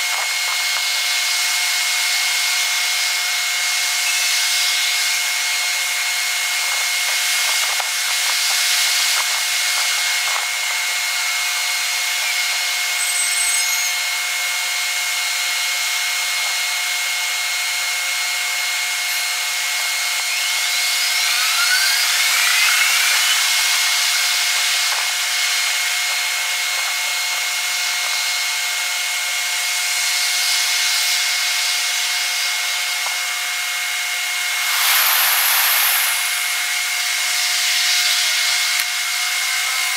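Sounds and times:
thin high whine: 0:00.0 - 0:39.9
rising whistles: 0:19.0 - 0:26.6, 0:34.2 - 0:38.7
rasping hiss: 0:34.3 - 0:38.7.

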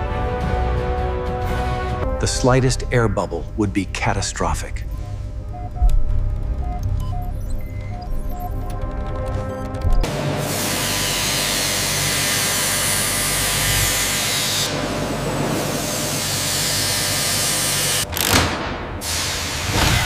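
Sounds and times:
background music: 0:00.0 - 0:10.2.

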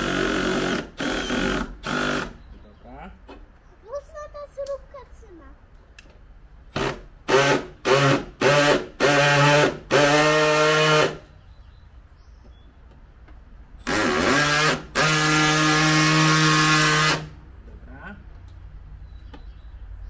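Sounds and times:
cordless drill whining: 0:00.0 - 0:02.4, 0:06.7 - 0:11.2, 0:13.8 - 0:17.3.

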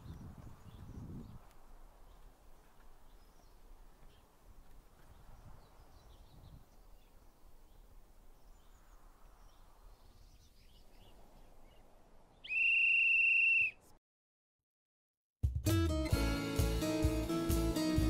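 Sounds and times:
bird chirps: 0:05.0 - 0:13.7
loud whistle blast: 0:12.5 - 0:13.8.

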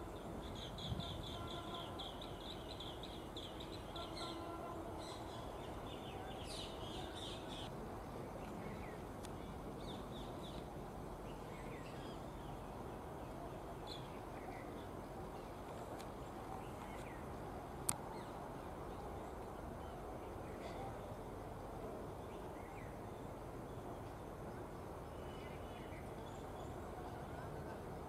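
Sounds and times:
birds trilled chirps: 0:00.0 - 0:07.7.

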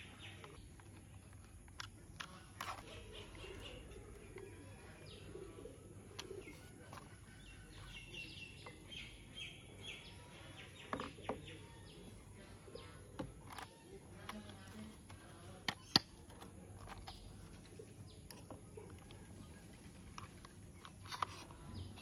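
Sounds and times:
handling plastic toy parts: 0:00.1 - 0:05.3, 0:05.9 - 0:08.9, 0:10.9 - 0:22.0
sharp plastic clicks: 0:00.3 - 0:04.5, 0:13.2 - 0:22.0.

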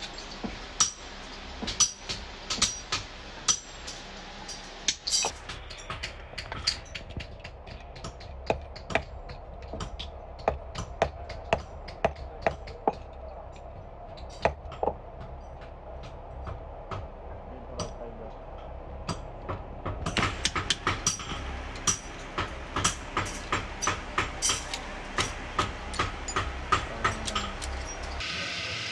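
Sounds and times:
low steady hum: 0:00.0 - 0:28.2
metal padlock parts clinking: 0:03.8 - 0:07.2, 0:24.4 - 0:28.2.

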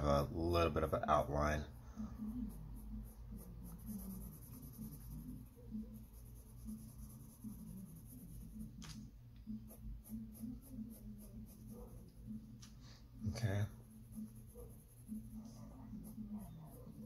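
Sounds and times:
pencil scratching on paper: 0:02.0 - 0:12.4, 0:13.4 - 0:17.0.

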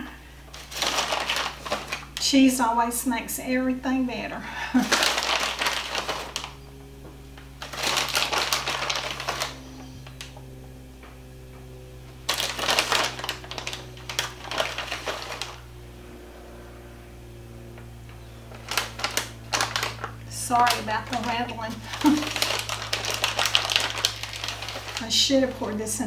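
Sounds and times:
plastic bag crinkling: 0:00.0 - 0:02.2, 0:04.8 - 0:06.7, 0:07.5 - 0:10.4, 0:12.2 - 0:15.8, 0:18.4 - 0:26.0.

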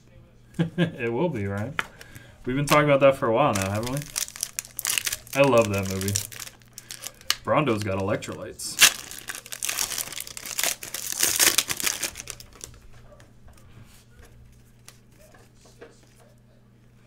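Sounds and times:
cards rustling: 0:01.6 - 0:12.9
foil wrapper crinkling: 0:02.0 - 0:12.8.

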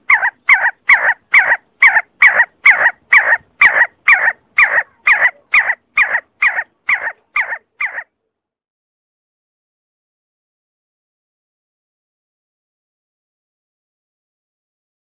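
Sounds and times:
partridge whistled calls: 0:00.0 - 0:08.1.

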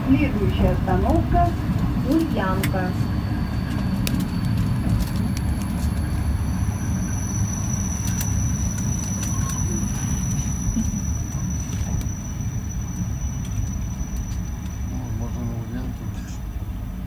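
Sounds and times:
train wheels rumbling: 0:00.0 - 0:17.0
thin high whistle: 0:02.7 - 0:16.4.

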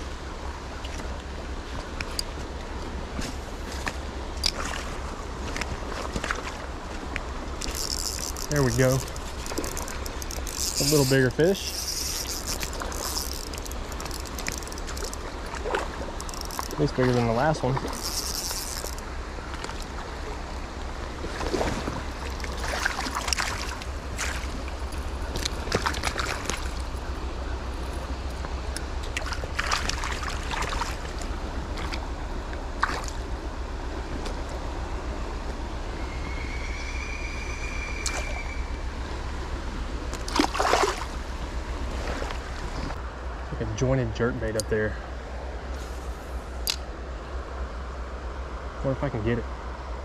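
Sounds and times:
creek water running: 0:00.0 - 0:50.0
water splash: 0:03.1 - 0:20.1, 0:21.2 - 0:27.0, 0:29.0 - 0:32.1, 0:32.7 - 0:33.3, 0:40.2 - 0:41.2
short clicks and rustles: 0:07.1 - 0:15.2, 0:16.2 - 0:19.0.

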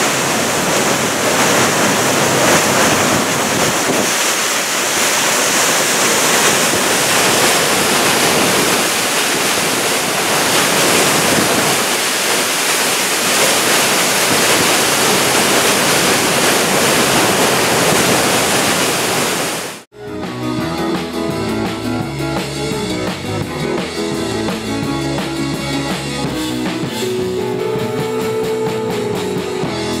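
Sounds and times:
waterfall rushing: 0:00.0 - 0:19.9
background music with steady beat: 0:19.9 - 0:30.0.

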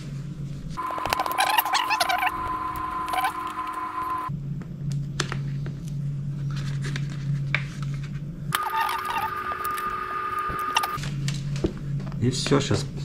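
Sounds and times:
electric hum: 0:00.7 - 0:04.5, 0:08.5 - 0:11.4.

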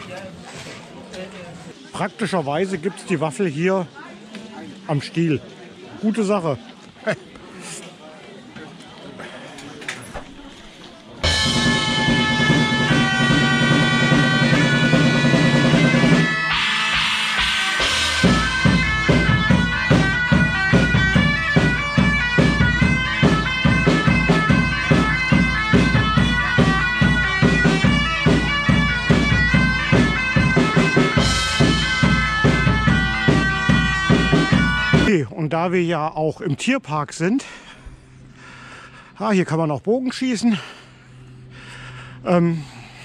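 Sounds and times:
bagpipe drones: 0:11.2 - 0:35.1
bagpipe melody: 0:11.2 - 0:35.2
steady drum beat: 0:11.2 - 0:35.3.

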